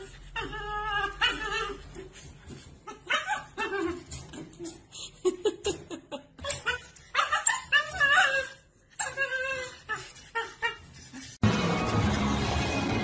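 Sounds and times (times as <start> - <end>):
dog whining and yowling: 0.0 - 4.6, 6.4 - 11.4
music: 11.4 - 13.0.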